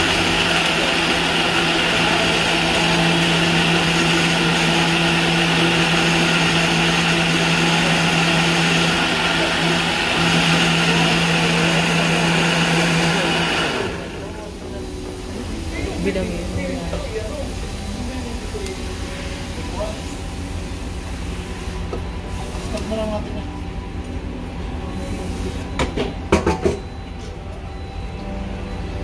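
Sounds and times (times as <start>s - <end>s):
blender motor running: 0.0s - 14.3s.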